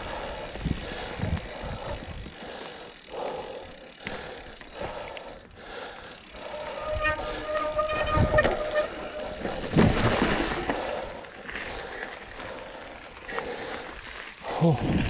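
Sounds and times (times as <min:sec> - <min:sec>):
bike knocking and rattling: 0:00.0 - 0:11.9
bike tyres on dirt: 0:00.0 - 0:15.0.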